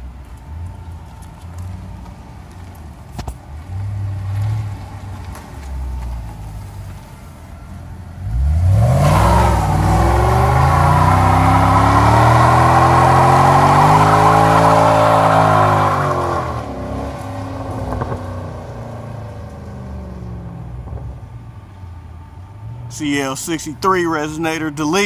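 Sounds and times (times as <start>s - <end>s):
tyres spinning in burnout: 8.2s - 18.0s
car engine at high revs: 8.2s - 23.6s.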